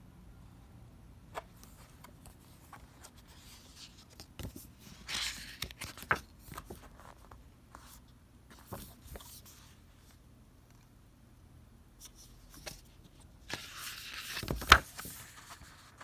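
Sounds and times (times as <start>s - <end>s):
paper pages rustling: 1.3s - 9.7s, 12.0s - 16.0s.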